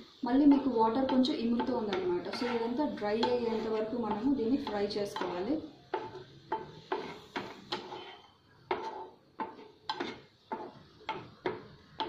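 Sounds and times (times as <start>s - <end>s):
spatula tapping a frying pan: 0.4s - 8.1s, 8.7s - 12.0s.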